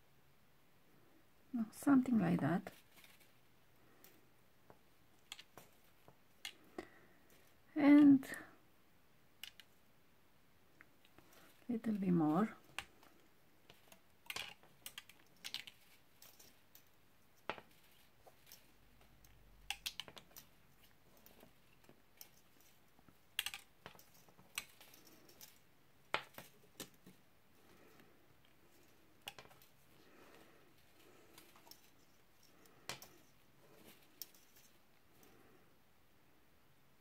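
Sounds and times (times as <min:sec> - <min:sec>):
wire clicking as it is wrapped: 0:04.0 - 0:06.9, 0:09.4 - 0:09.8, 0:12.6 - 0:35.5.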